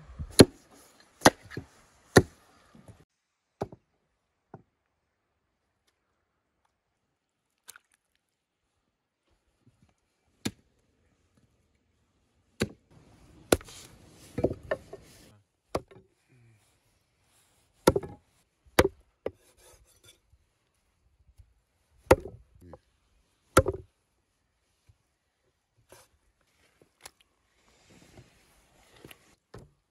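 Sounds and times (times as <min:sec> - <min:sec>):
cleaver chopping bone on wood: 0:17.9 - 0:18.2, 0:22.1 - 0:22.4, 0:23.6 - 0:23.8.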